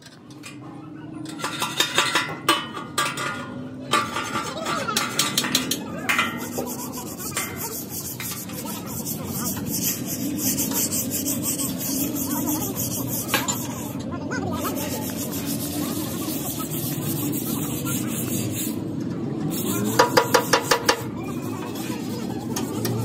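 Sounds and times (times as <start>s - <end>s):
metallic knocks and clanks: 1.2s - 6.6s
hand rubbing steel surface: 1.3s - 23.0s.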